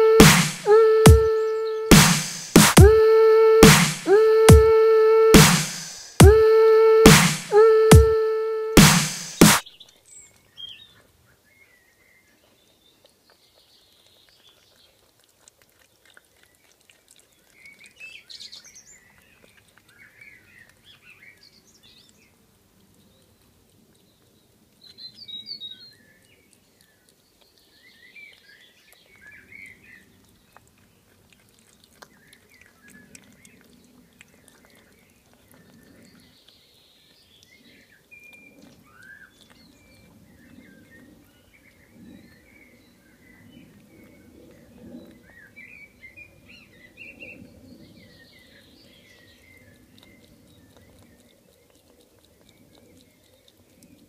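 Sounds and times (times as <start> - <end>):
small birds chirping: 16.1 - 54.0.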